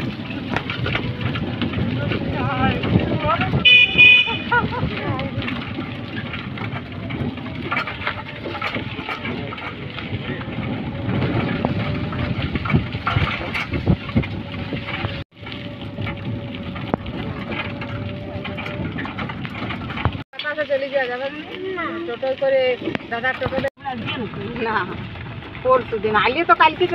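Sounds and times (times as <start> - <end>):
rattles and knocks: 0.0 - 20.6
vehicle running on rough road: 0.0 - 26.9.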